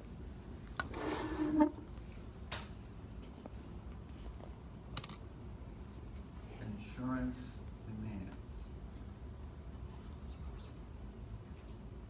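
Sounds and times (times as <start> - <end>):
marker squeaking on whiteboard: 0.9 - 1.8.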